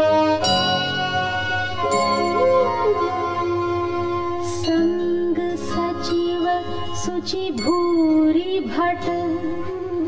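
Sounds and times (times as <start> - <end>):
high shimmer: 0.4 - 5.4
held melody note: 0.4 - 5.5.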